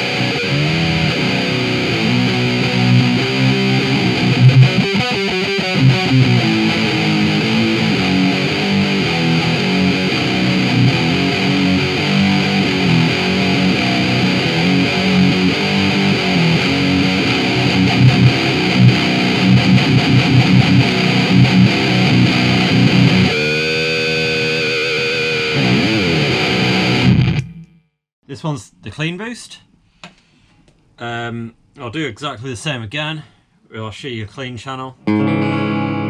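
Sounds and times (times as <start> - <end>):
distorted electric guitar riffing: 0.0 - 27.8, 35.1 - 36.0.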